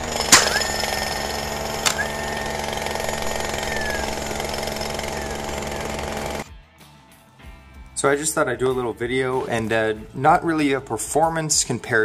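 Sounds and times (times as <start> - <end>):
high motor whine: 0.0 - 6.5
power drill rattling: 0.0 - 6.5.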